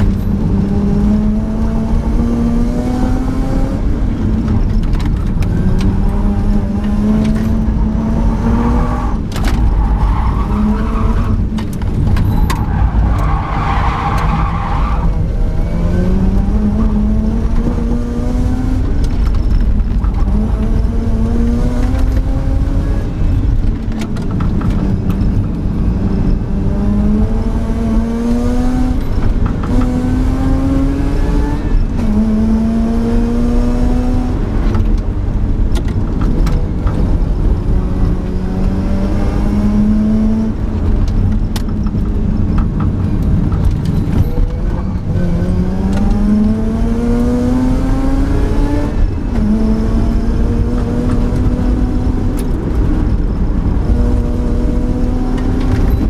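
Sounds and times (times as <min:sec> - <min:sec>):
rotary engine accelerating: 0:00.0 - 0:11.4, 0:37.1 - 0:41.9, 0:44.9 - 0:56.0
road and tyre noise: 0:00.0 - 0:56.0.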